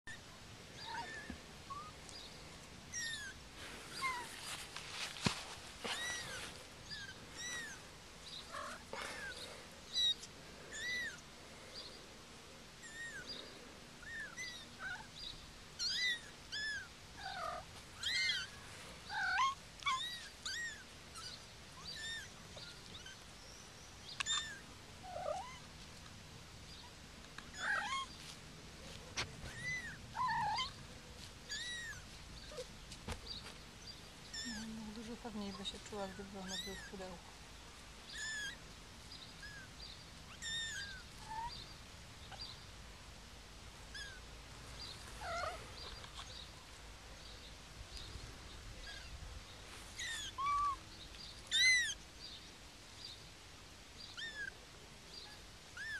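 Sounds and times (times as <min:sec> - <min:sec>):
kittens mewing: 0:00.8 - 0:01.9, 0:02.9 - 0:04.4, 0:05.8 - 0:07.8, 0:08.4 - 0:11.2, 0:15.8 - 0:23.2, 0:24.2 - 0:25.7, 0:27.4 - 0:28.2, 0:29.1 - 0:30.8, 0:34.3 - 0:34.8, 0:38.1 - 0:38.6, 0:40.3 - 0:41.6, 0:43.9 - 0:44.2, 0:45.2 - 0:46.3, 0:50.0 - 0:50.8, 0:51.5 - 0:52.0, 0:54.2 - 0:54.6.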